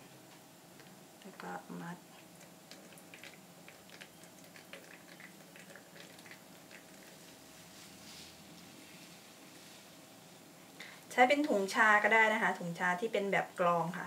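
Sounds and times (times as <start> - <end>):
wet clicks and squelches: 2.4 - 7.1.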